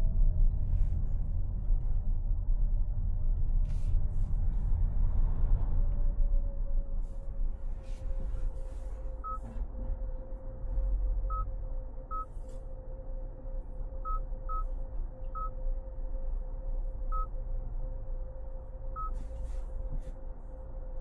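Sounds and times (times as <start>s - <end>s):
low road rumble: 0.0s - 21.0s
short electronic beeps: 19.0s - 19.2s.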